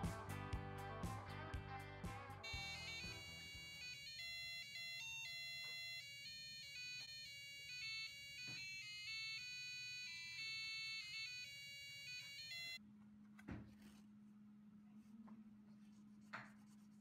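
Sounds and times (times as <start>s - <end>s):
electronic beeping melody: 2.4s - 6.4s.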